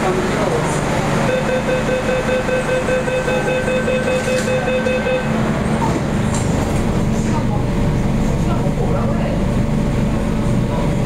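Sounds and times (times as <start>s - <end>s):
train low hum: 0.0s - 11.0s
door-closing warning beeps: 1.3s - 5.3s
sliding train doors shutting: 4.1s - 7.5s.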